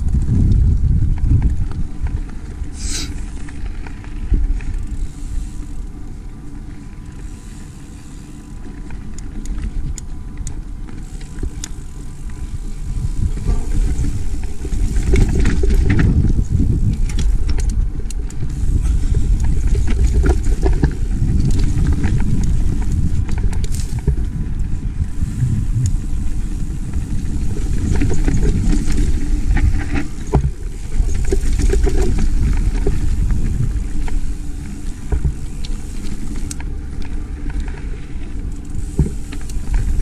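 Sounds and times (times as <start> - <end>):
bike rattling over rocks: 0.0 - 40.0
bike tyres rumbling on dirt: 0.0 - 40.0.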